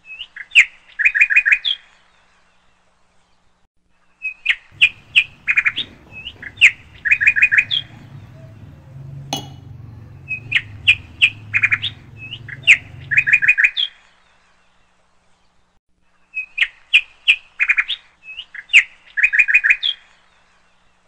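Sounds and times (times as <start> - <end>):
low faint hum: 4.8 - 13.5
bird chirping: 4.8 - 13.6.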